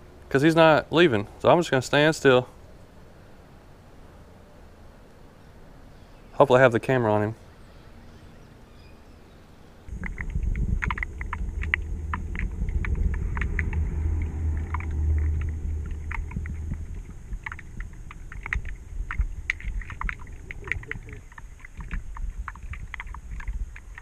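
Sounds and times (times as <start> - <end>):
muffled underwater rumble: 9.9 - 24.0
sharp clicks and ticks: 9.9 - 24.0.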